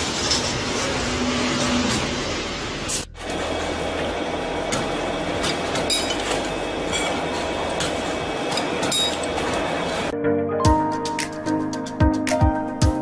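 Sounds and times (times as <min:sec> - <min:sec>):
workshop machine noise: 0:00.0 - 0:10.2
background music: 0:10.1 - 0:13.0.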